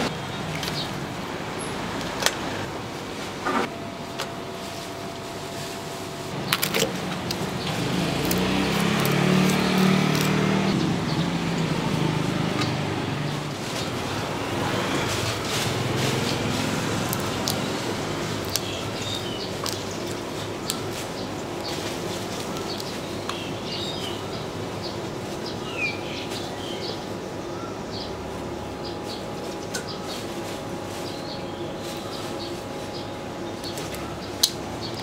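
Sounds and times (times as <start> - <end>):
vehicle low rumble: 0.0 - 25.8
street traffic noise: 0.0 - 35.0.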